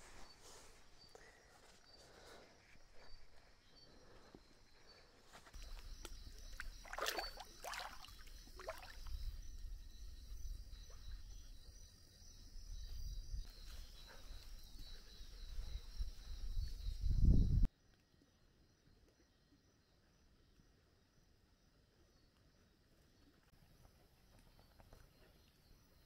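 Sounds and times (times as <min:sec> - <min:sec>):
night insects trilling: 0:00.1 - 0:17.7.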